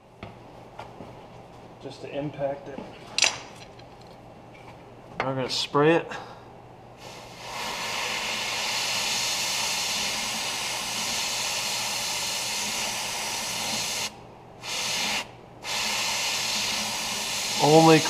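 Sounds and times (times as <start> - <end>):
aerosol can spraying hiss: 7.0 - 18.0.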